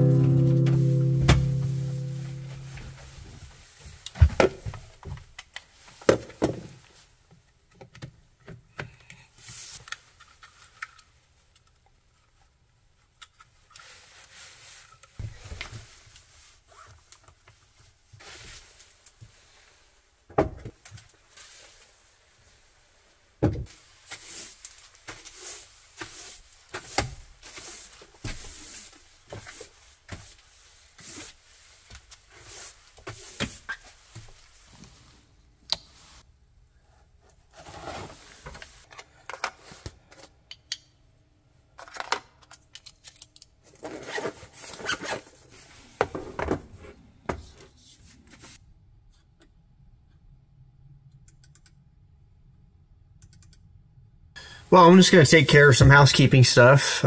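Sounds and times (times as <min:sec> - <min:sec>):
rubbing and scuffing: 0:23.7 - 0:35.2.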